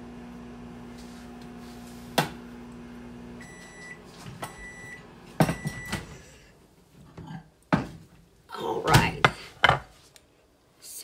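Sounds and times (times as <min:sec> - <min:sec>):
microwave oven humming: 0:00.0 - 0:06.5.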